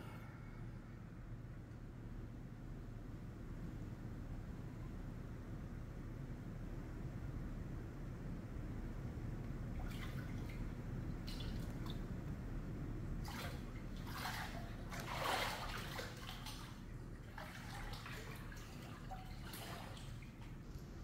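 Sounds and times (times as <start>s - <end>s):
steady low hum: 0.0s - 21.0s
water sloshing and splashing: 9.7s - 12.3s, 13.1s - 21.0s.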